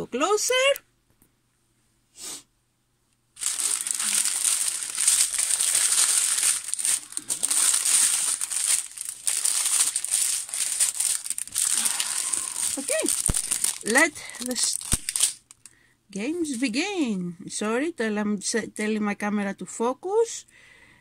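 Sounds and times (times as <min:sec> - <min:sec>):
plastic bags crinkling: 0:03.4 - 0:15.8.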